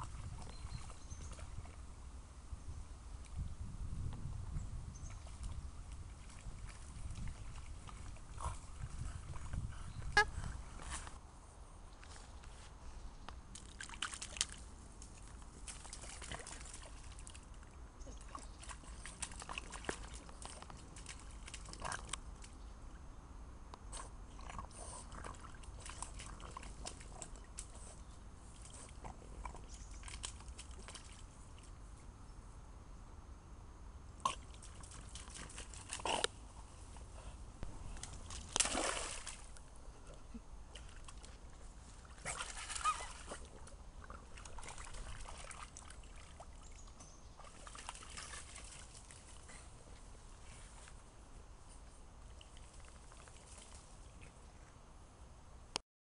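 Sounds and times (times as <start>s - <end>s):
dog splashing in puddle: 5.1s - 9.6s, 13.5s - 22.5s, 24.3s - 31.7s, 34.3s - 36.4s, 37.9s - 39.7s, 40.7s - 49.7s, 52.2s - 54.3s.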